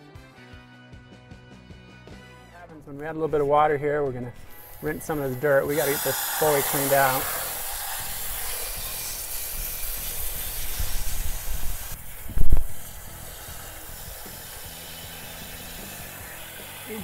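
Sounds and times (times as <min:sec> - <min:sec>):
hose spray nozzle hissing: 0:04.3 - 0:17.0.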